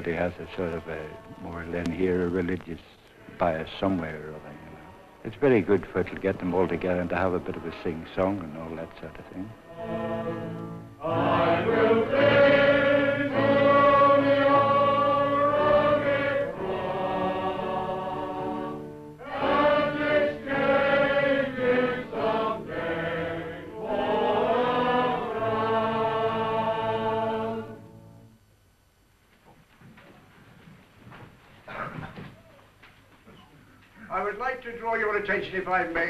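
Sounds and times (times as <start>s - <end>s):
men singing a hymn: 5.4s - 27.8s.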